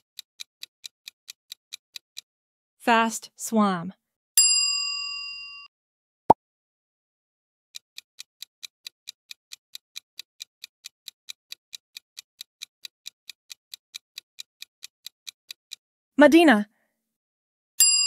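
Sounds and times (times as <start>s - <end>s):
timer clock ticking: 0.0s - 2.3s, 7.8s - 15.8s.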